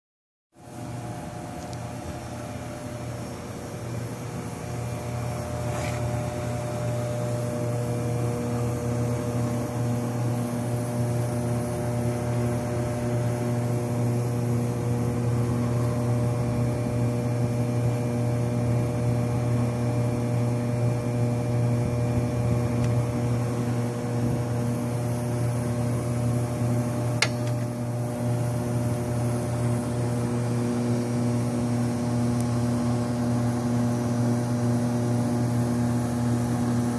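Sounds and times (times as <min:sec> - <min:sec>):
centrifuge motor hum: 0:00.6 - 0:36.9
sharp click: 0:27.2 - 0:27.7.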